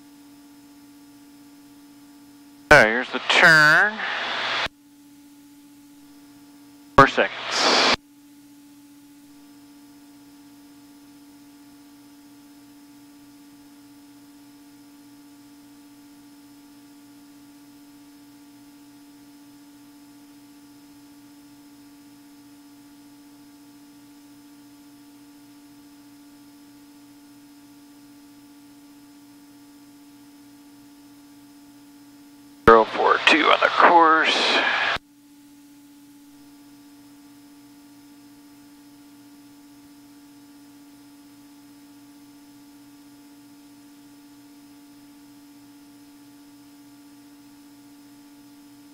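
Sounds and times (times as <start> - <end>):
aircraft engine drone: 2.7 - 4.7, 7.0 - 8.0, 32.7 - 35.0
headset intercom hiss: 2.7 - 4.7, 7.0 - 8.0, 32.7 - 35.0.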